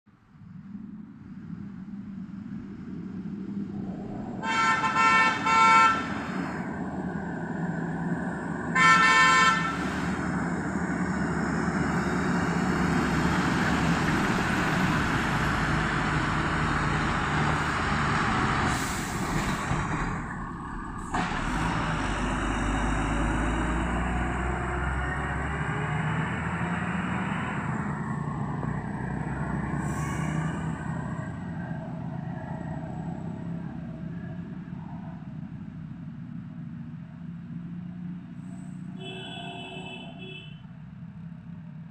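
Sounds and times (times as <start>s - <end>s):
truck diesel engine labouring: 0.7s - 40.3s
truck horn honking: 4.4s - 6.3s, 8.7s - 10.0s, 39.0s - 40.6s.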